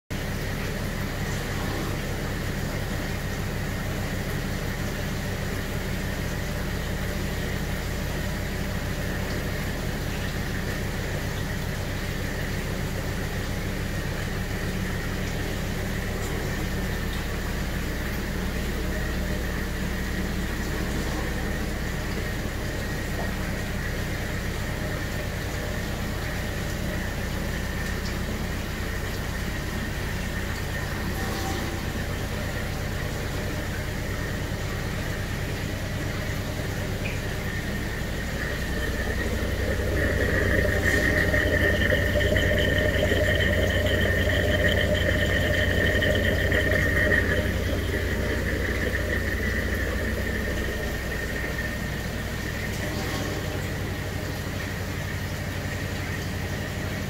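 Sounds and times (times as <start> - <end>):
aquarium pumps humming: 0.1 - 57.0
faint steady whine: 15.1 - 54.7.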